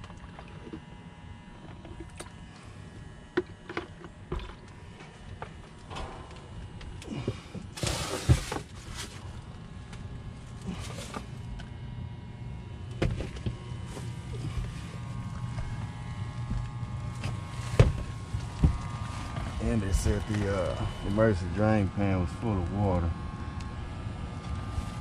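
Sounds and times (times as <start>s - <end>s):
heating unit humming: 0.0s - 25.0s
rustling of duct: 6.6s - 11.6s, 13.2s - 21.0s
knocks on plywood: 17.8s - 18.0s.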